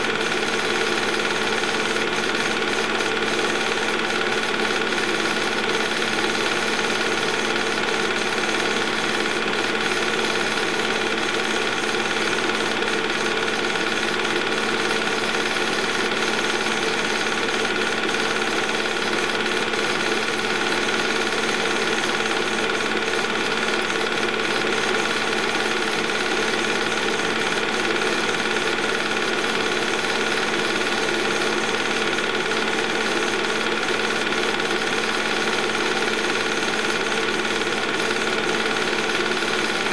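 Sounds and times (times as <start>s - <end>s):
movie projector whirring and clattering: 0.0s - 39.9s.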